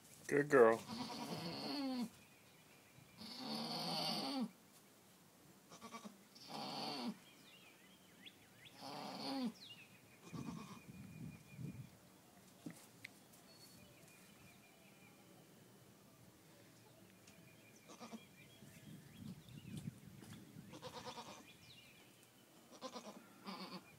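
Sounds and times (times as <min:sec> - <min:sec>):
goat bleating in labor: 0:00.8 - 0:02.1, 0:03.2 - 0:04.5, 0:05.7 - 0:07.2, 0:10.2 - 0:10.9, 0:17.9 - 0:18.2, 0:20.7 - 0:21.5, 0:22.7 - 0:23.9.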